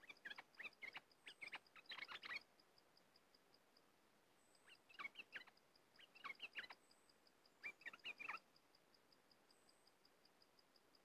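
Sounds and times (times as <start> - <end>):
bird chirping: 0.0 - 2.7, 4.4 - 8.6.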